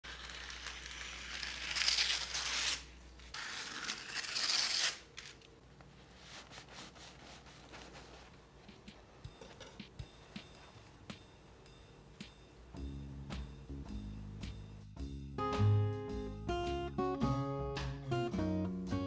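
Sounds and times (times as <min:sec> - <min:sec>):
scissors cutting paper: 0:00.0 - 0:05.5
paper crackling: 0:00.0 - 0:08.4.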